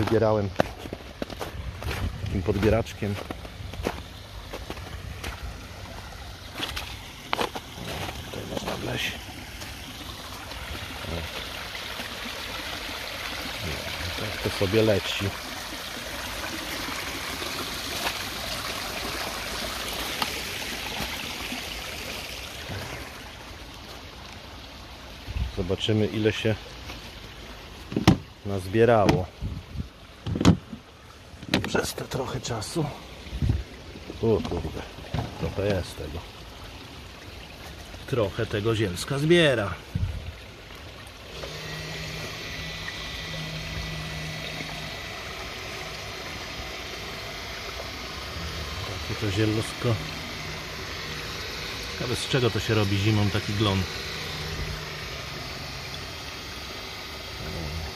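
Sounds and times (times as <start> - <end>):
water rushing through filter: 0.0 - 57.9
water splashing down waterfall: 3.9 - 24.2
low motor hum: 39.9 - 57.9.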